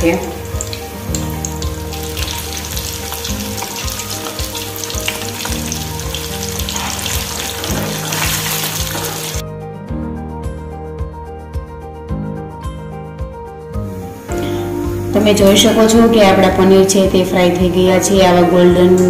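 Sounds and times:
food deep-frying in hot oil: 0.0 - 9.4.

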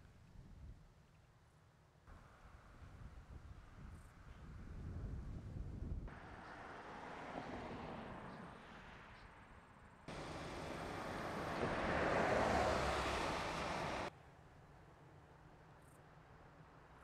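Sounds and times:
wind: 0.0 - 17.0
highway traffic rushing: 6.1 - 14.1.

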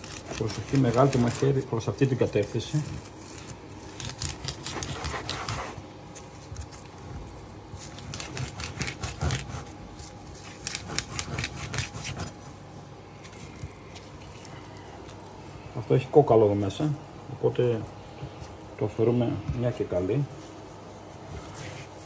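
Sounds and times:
knife scraping dried fish skin: 0.0 - 6.9, 7.8 - 12.4.

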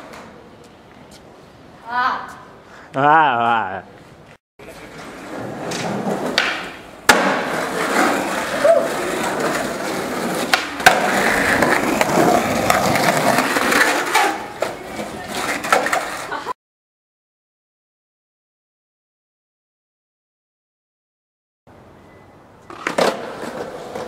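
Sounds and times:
skateboard wheels rolling on asphalt: 4.0 - 16.5, 22.6 - 24.0
skateboard clacking on ground: 4.6 - 16.4, 22.6 - 24.0.

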